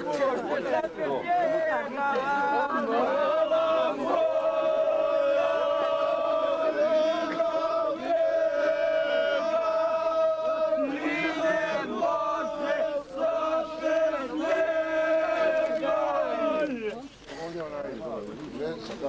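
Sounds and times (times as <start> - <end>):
group of people singing: 0.7 - 17.0.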